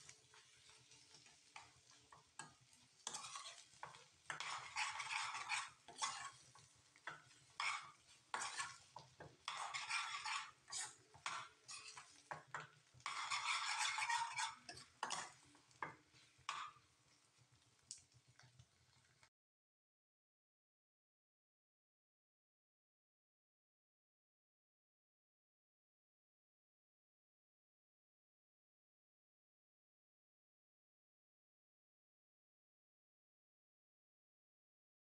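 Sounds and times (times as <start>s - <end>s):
utensil scraping a frying pan: 0.0s - 17.4s.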